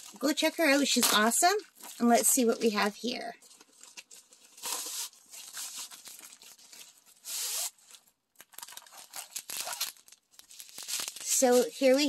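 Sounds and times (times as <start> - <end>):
packaging tearing and crinkling: 3.4 - 12.0.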